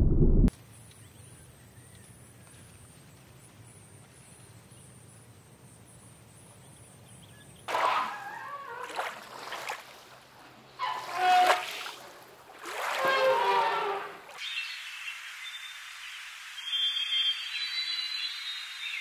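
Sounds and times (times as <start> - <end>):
elephants splashing in water: 7.7 - 14.5.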